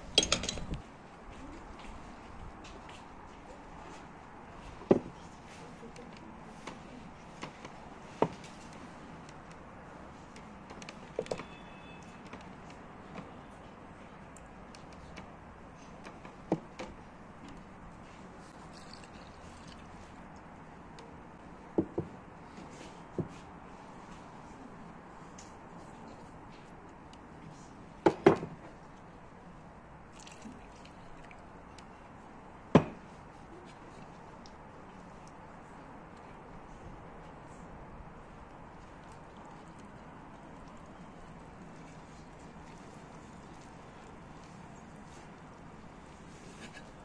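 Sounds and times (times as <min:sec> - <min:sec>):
water splashing into flour: 0:30.1 - 0:31.5.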